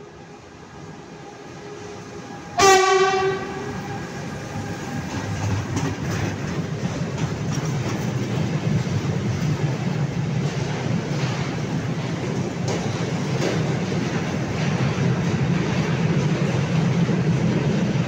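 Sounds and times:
freight train rumbling past: 0.0s - 18.0s
locomotive horn blast: 1.7s - 4.1s.

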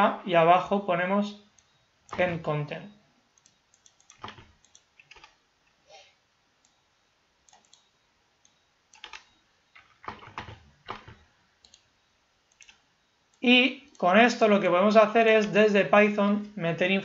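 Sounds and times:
keyboard keys clicking: 3.4s - 5.4s, 7.5s - 7.8s, 8.9s - 11.8s, 12.5s - 12.8s.

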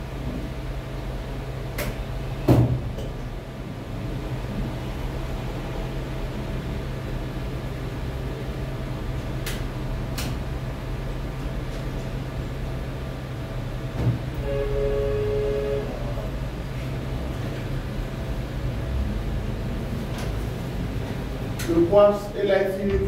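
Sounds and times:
steady low hum: 0.0s - 23.0s
two-note horn-like tone: 14.3s - 16.4s.

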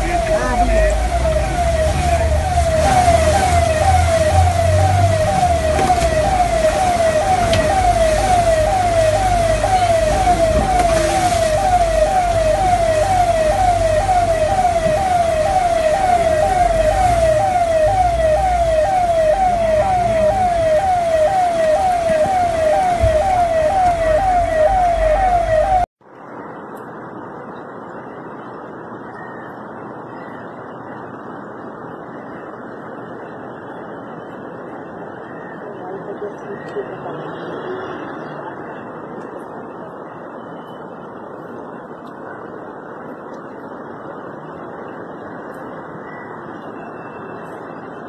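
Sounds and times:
siren yelping: 0.0s - 25.9s.

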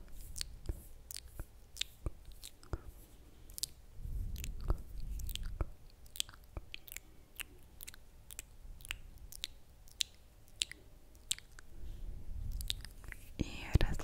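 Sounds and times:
wet mouth clicks and smacks: 0.0s - 2.9s, 3.5s - 11.7s, 12.4s - 13.9s.

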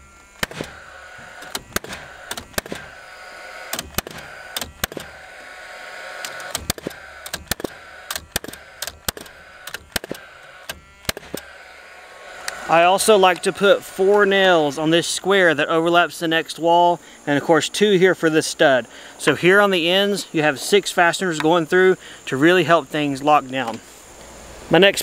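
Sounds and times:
nailer fan motor whir: 0.0s - 16.7s
nail gun shots: 0.4s - 11.6s.

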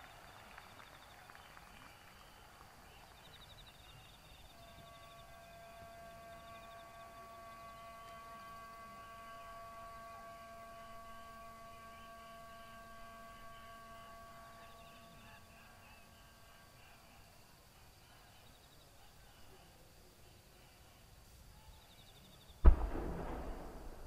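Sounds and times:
held chord of steady tones: 0.0s - 24.0s
insect trills: 2.3s - 24.0s.

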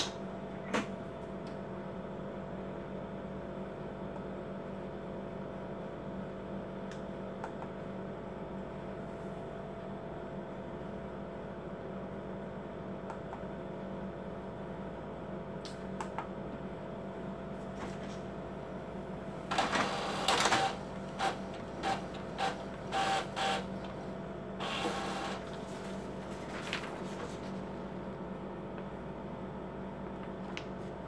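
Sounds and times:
inkjet printer whirs and clacks: 19.4s - 27.6s.

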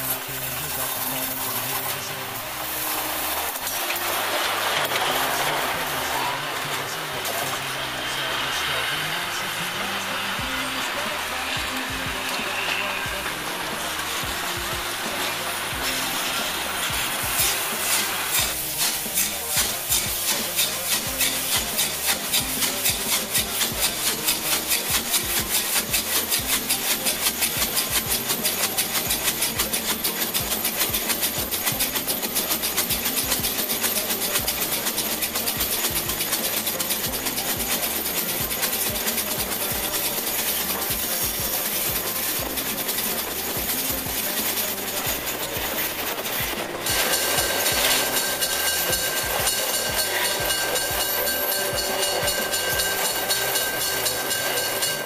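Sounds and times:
steam locomotive chuffing: 0.0s - 55.0s.

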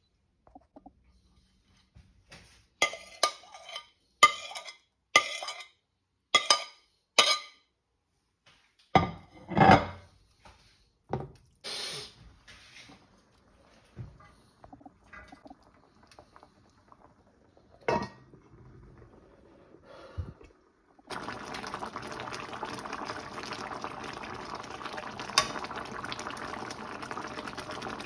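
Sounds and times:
spoon clinking on a plate: 2.8s - 5.7s, 6.4s - 7.6s.

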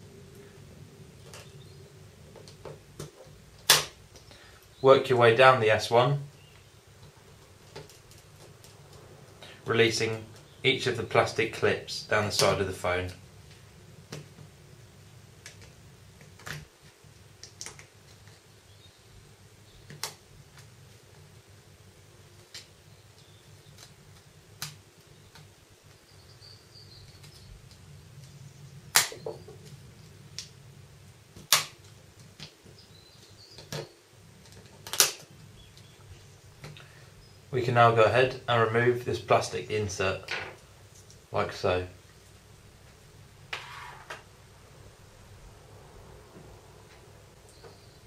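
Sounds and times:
plastic clips snapping: 2.4s - 4.3s, 17.4s - 18.2s, 28.9s - 29.3s, 31.4s - 32.6s, 33.6s - 35.8s.

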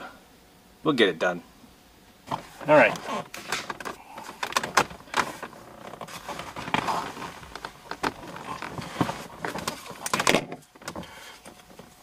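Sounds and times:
plastic parts clicking and tapping: 2.9s - 6.9s, 7.5s - 11.9s.

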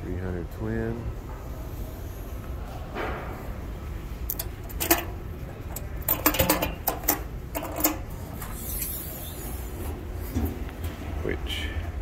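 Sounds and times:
clasps clicking and knocking: 4.3s - 8.2s.

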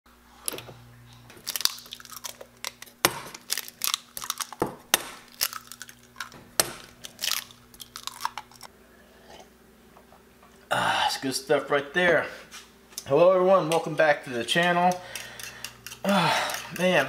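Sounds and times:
low steady hum: 0.1s - 17.0s
eggs cracking against metal bowl: 1.3s - 8.7s, 14.5s - 17.0s.

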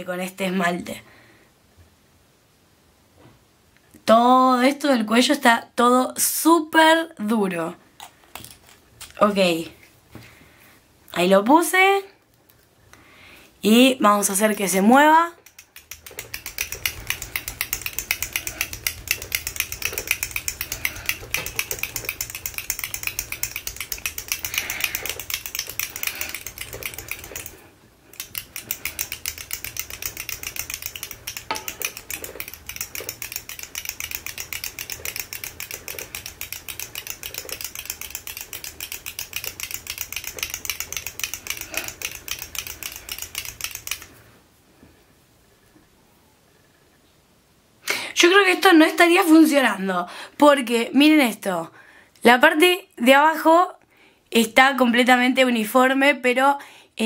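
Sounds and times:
mixing ball clicking in bottle: 14.3s - 44.2s.

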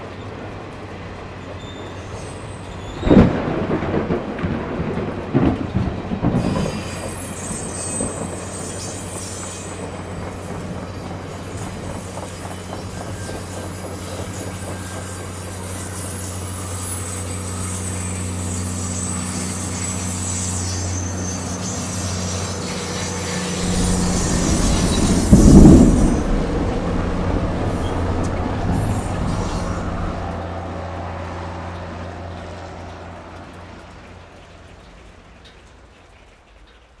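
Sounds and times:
steam locomotive hum with hiss: 6.3s - 30.8s
loud low burst: 23.6s - 30.4s.

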